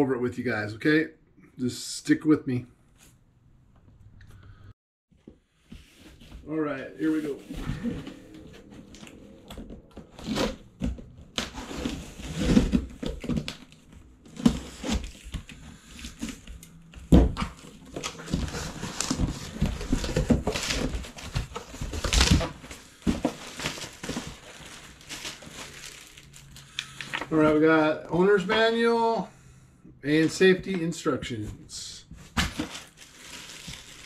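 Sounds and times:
packing paper and foam rustling: 0:05.4 - 0:28.8, 0:32.1 - 0:34.0.

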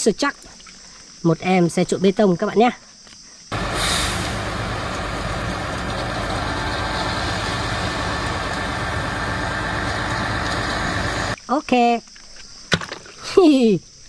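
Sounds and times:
diesel truck engine running: 0:03.5 - 0:11.4.

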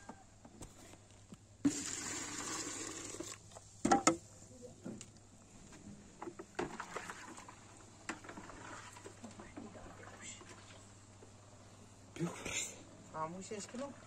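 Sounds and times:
liquid splashing into bucket: 0:01.6 - 0:03.4, 0:06.6 - 0:09.3.

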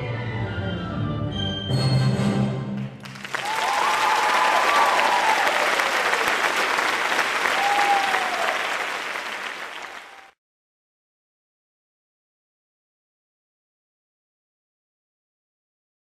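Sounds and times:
audience applauding: 0:02.8 - 0:10.4.

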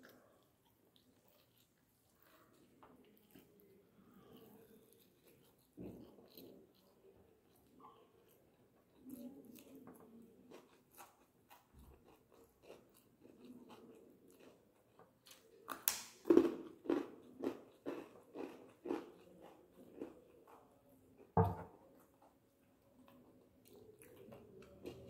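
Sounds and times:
person chewing: 0:00.0 - 0:25.0
thump: 0:21.4 - 0:21.7.

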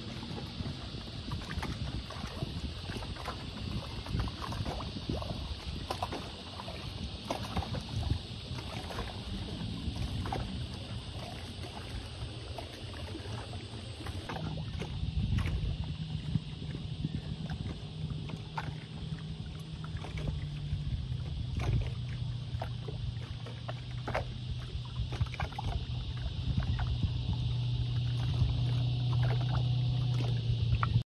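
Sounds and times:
water lapping against pontoon: 0:00.0 - 0:31.0
wind rumble on microphone: 0:00.0 - 0:31.0.

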